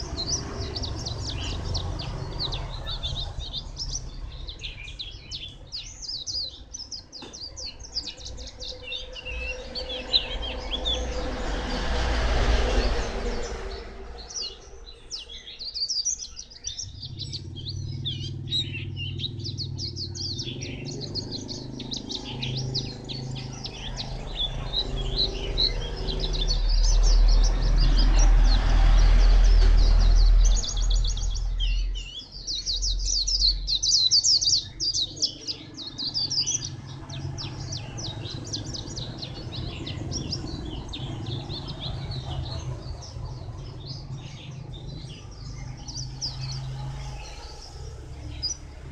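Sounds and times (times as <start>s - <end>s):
bird twittering song: 0.0s - 48.9s
low rumble: 16.8s - 33.6s.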